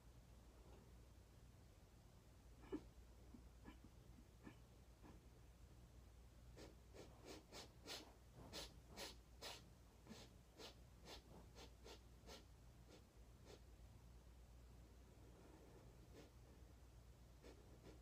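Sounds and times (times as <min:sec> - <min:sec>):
quick short breaths: 0:06.6 - 0:13.6.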